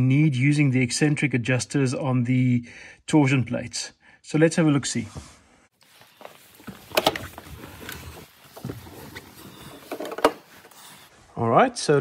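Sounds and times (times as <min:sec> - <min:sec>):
clothing rustling against seat: 0:05.8 - 0:11.2.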